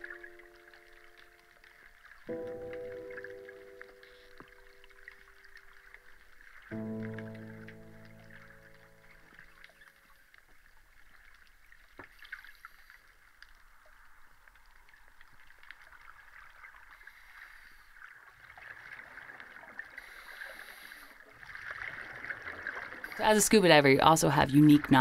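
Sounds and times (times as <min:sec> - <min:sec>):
low rumble of water movement: 0:00.0 - 0:25.0
underwater hiss with tiny clicks: 0:11.9 - 0:13.7, 0:16.9 - 0:18.0, 0:20.0 - 0:21.2.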